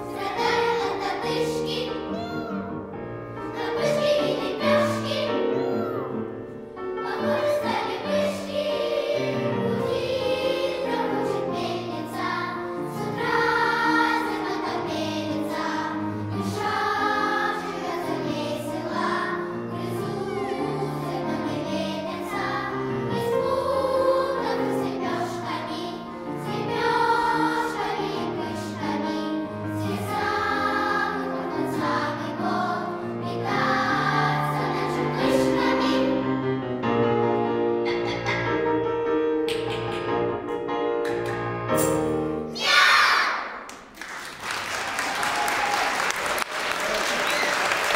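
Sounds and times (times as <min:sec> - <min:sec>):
children's choir singing: 0:00.0 - 0:36.8, 0:42.5 - 0:43.8
piano accompaniment: 0:00.0 - 0:42.6.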